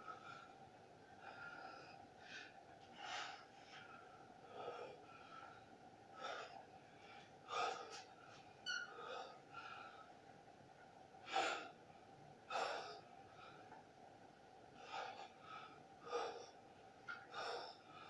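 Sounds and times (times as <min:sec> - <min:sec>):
man breathing hard: 0:01.2 - 0:08.2, 0:14.8 - 0:16.6, 0:17.2 - 0:18.0.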